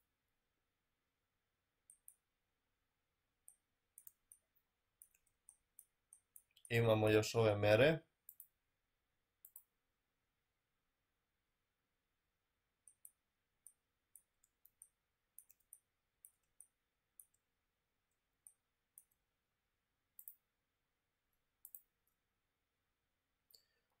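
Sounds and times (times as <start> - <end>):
faint computer mouse clicks: 3.4 - 6.7, 9.4 - 9.7, 20.2 - 20.4, 21.6 - 21.9.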